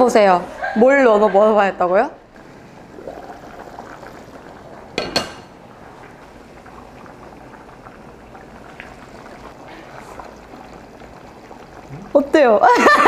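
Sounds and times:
pot bubbling at a boil: 0.6s - 13.0s
pot lid clinks: 5.0s - 5.5s.

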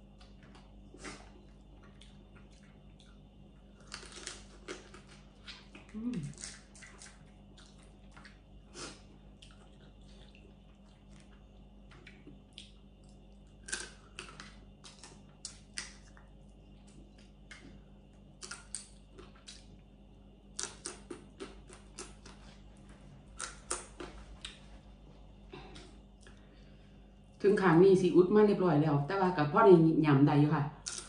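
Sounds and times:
chewing: 0.2s - 17.8s, 20.5s - 22.7s, 23.3s - 24.6s.

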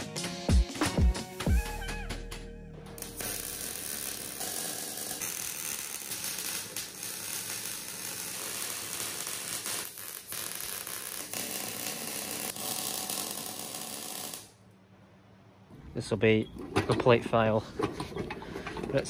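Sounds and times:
welding arc crackling hiss: 3.0s - 14.6s.

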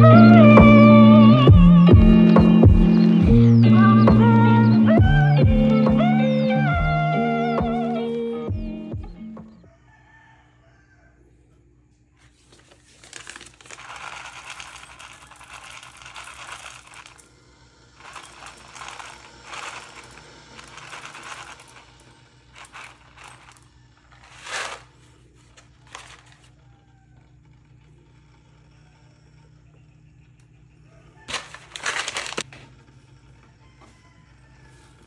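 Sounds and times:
paper bag rustling and crinkling: 12.2s - 17.0s, 22.6s - 26.5s, 31.2s - 32.7s
coffee beans rattling into a cup: 12.4s - 27.0s, 31.2s - 32.6s.

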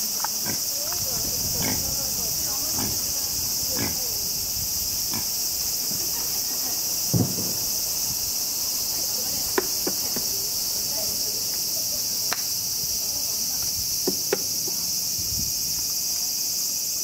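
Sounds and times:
insects chorus: 0.0s - 17.0s
pig grunts: 1.4s - 4.2s.

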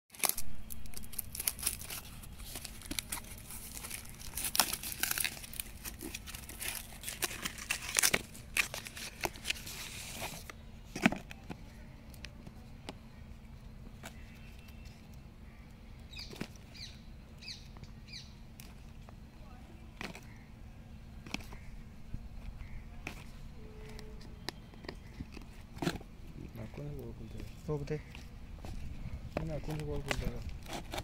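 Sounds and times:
tape and cardboard ripping: 0.2s - 11.4s, 30.0s - 31.0s.

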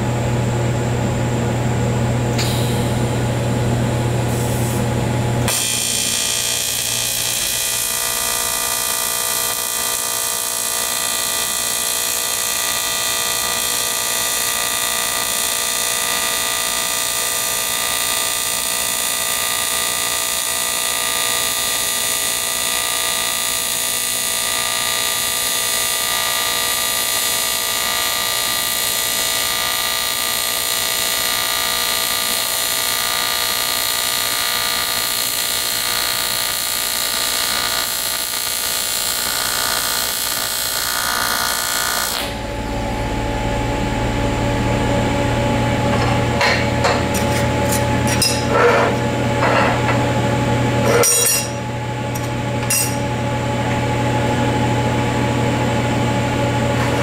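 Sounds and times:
low hum: 0.0s - 7.7s, 42.3s - 56.7s
welding arc buzzing: 2.3s - 57.0s.

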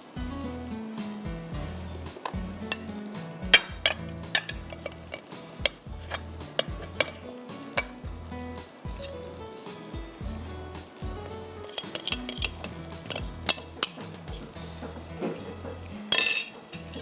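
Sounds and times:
music with bass line: 0.0s - 11.6s, 12.2s - 17.0s
glass bowl clinking on platter: 16.1s - 17.0s.

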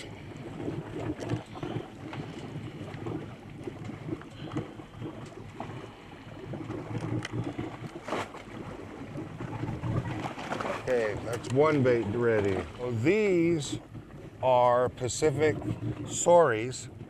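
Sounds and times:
wind on microphone: 8.9s - 17.0s.

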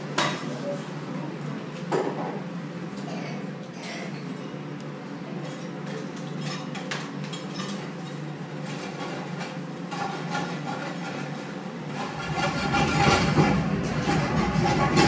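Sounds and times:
steady low hum: 7.9s - 15.0s.

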